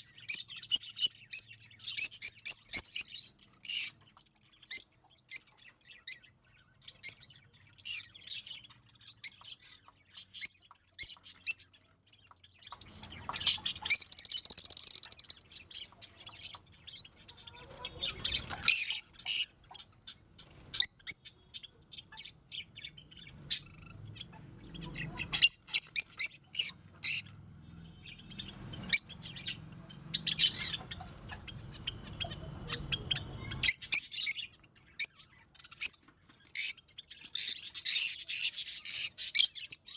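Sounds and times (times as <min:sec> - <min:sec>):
lovebirds chirping and squawking: 0:00.0 - 0:39.9.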